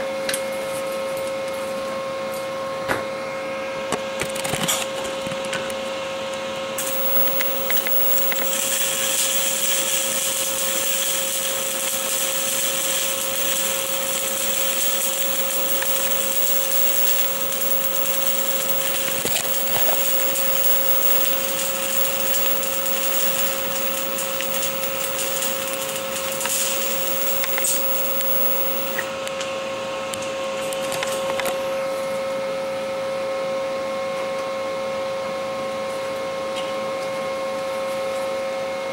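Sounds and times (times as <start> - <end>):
high-pitched whine: 6.7 - 29.3
welding arc crackling and hissing: 6.8 - 29.2.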